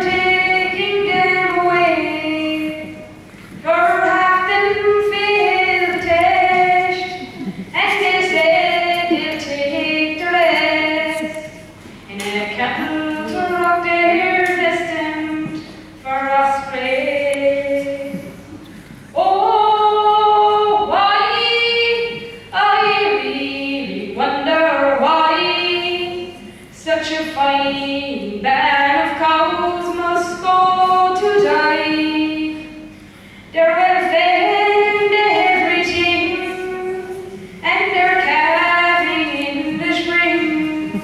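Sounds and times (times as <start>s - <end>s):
boy singing unaccompanied: 12.2s - 18.4s.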